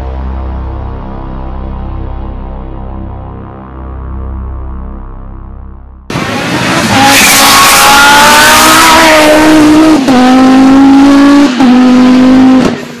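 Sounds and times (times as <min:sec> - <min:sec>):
race car accelerating: 0:06.1 - 0:13.0.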